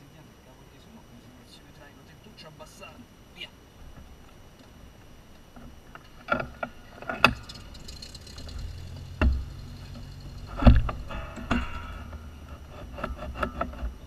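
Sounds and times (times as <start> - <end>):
low steady hum: 0.0 - 14.0
knocks and rattles in cockpit: 5.6 - 14.0.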